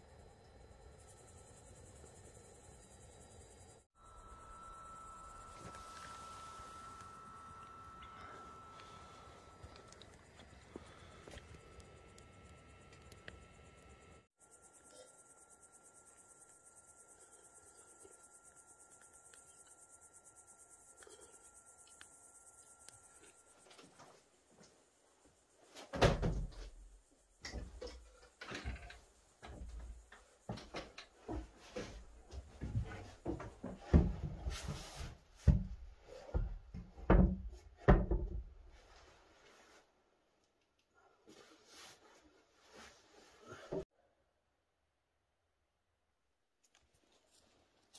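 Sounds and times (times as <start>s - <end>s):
thin steady tone: 0.0s - 25.8s
crickets chirping: 0.0s - 37.3s.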